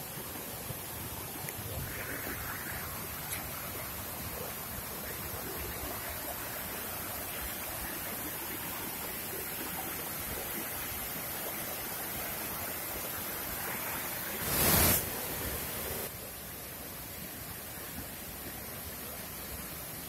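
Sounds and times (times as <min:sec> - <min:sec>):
stream rushing over rocks: 0:00.0 - 0:20.0
loud rush of noise: 0:01.6 - 0:05.8.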